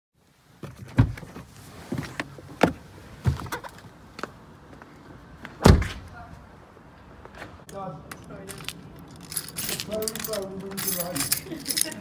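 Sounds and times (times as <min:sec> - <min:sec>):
car door clicks and thumps: 0:00.6 - 0:03.8.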